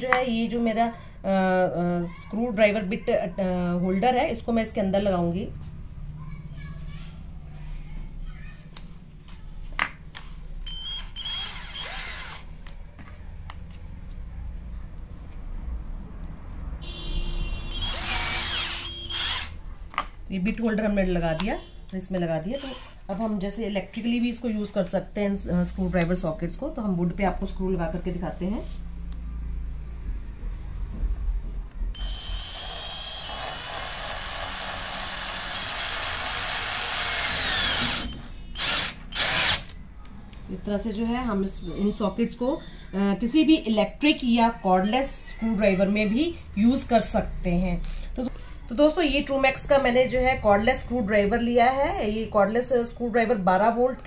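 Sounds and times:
cordless drill whining: 0:10.6 - 0:12.5, 0:17.7 - 0:19.6, 0:22.6 - 0:23.0, 0:32.0 - 0:39.8.

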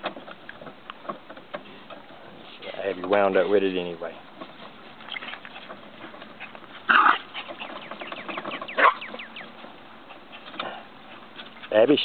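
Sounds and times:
small dog barking: 0:06.9 - 0:07.3, 0:08.7 - 0:09.2.

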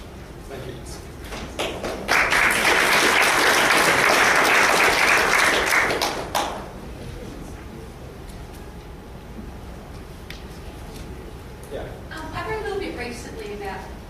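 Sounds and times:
audience applauding: 0:01.4 - 0:06.7.

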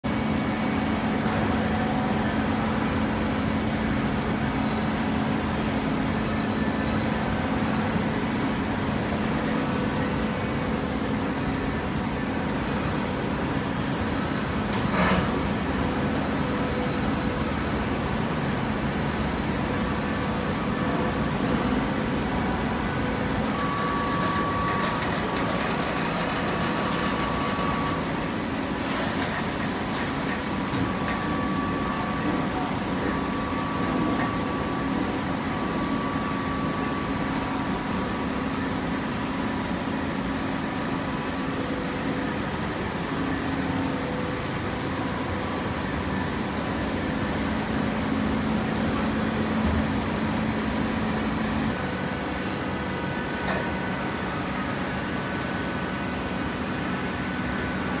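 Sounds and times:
baler motor hum: 0:46.0 - 0:52.0.

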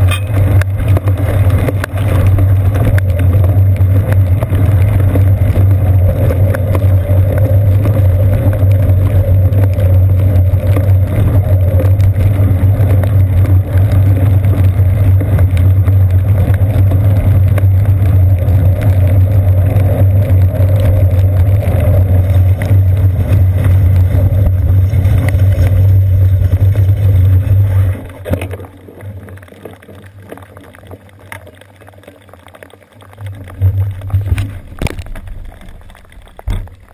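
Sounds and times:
wind buffeting camera: 0:00.0 - 0:28.4
bicycle rolling on wet pavement: 0:00.0 - 0:36.9.

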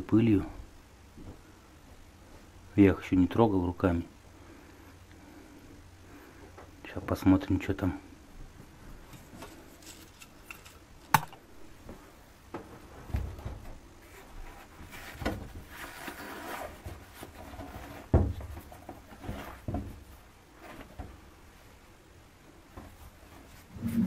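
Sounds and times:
fabric rustling: 0:12.8 - 0:21.7.

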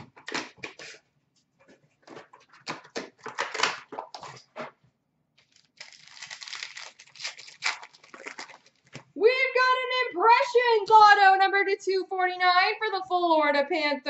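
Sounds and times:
wrapper crinkling and tearing: 0:05.4 - 0:09.2.

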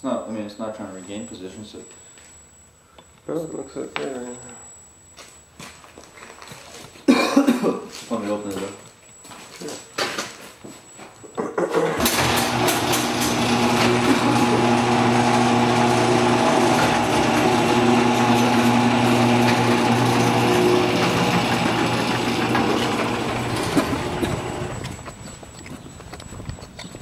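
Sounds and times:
garage door opener motor hum: 0:11.9 - 0:25.4.

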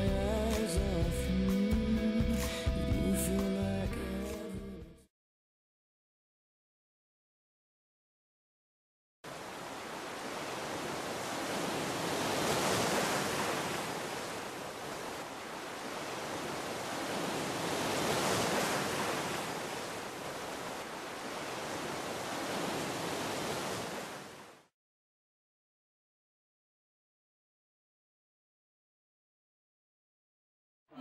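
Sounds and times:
ocean waves breaking: 0:09.3 - 0:24.7.

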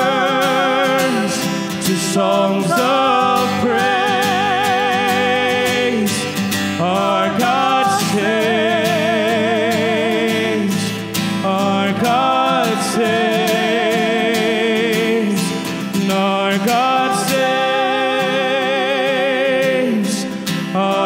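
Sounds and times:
worship band playing: 0:00.0 - 0:20.1
voices singing long notes: 0:00.0 - 0:21.0.

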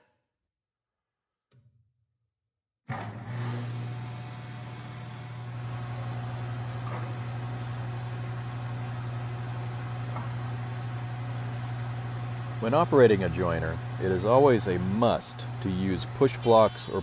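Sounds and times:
jointer motor starting and humming: 0:02.9 - 0:17.0.

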